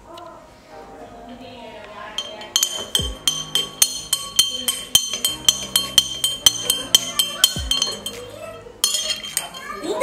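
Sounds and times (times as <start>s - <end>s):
spoon clinking against glass: 2.2s - 10.0s.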